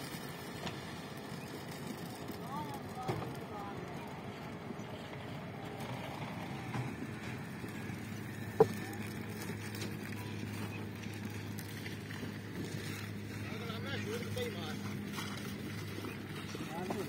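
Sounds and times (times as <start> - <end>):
concrete mixer engine humming: 0.0 - 17.0.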